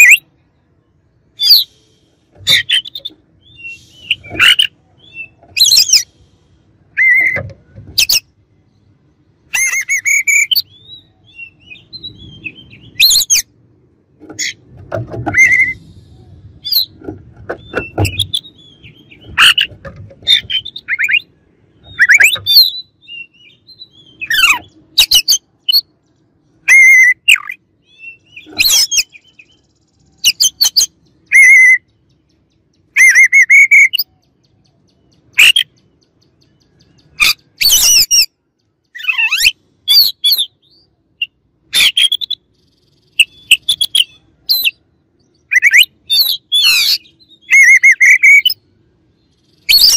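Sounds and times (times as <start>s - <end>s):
harsh chattering bird calls: 0.0s - 49.9s
bird singing whistled notes: 2.5s - 6.1s, 9.5s - 13.5s, 15.3s - 16.9s, 20.3s - 25.9s, 26.6s - 38.3s, 38.9s - 48.6s, 49.2s - 49.9s.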